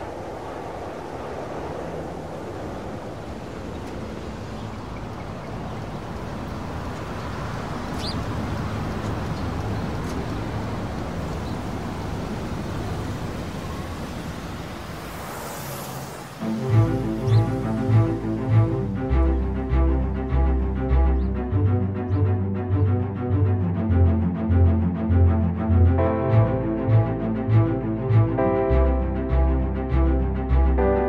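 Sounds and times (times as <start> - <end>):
steady rushing noise: 0.0 - 31.0
rising whoosh: 14.4 - 21.2.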